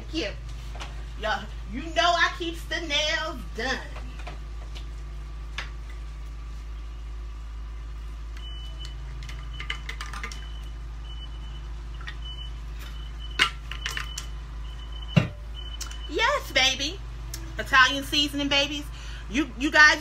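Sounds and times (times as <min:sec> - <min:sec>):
steady low hum: 0:00.0 - 0:20.0
vehicle reversing alarm beeping: 0:06.8 - 0:17.8.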